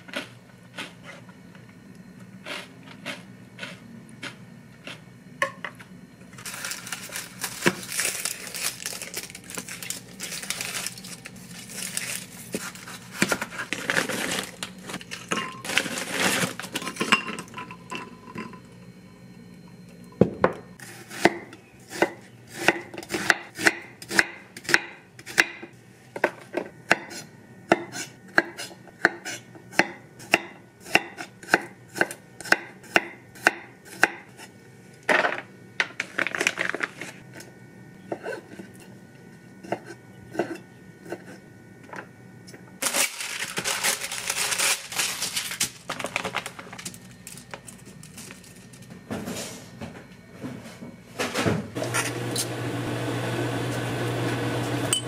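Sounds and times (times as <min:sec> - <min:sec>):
onion skin crackling: 0:06.4 - 0:16.7, 0:42.8 - 0:48.8.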